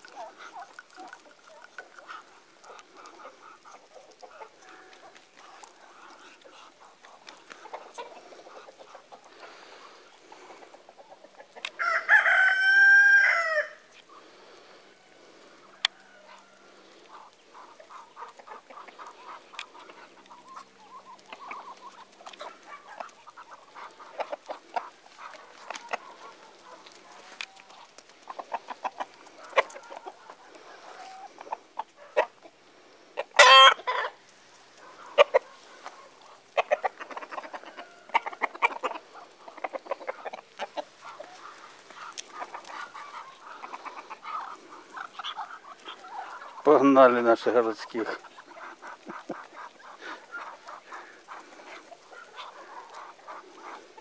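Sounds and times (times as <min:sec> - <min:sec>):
hens and ducks clucking: 0:00.0 - 0:54.0
rooster crowing: 0:11.8 - 0:13.9.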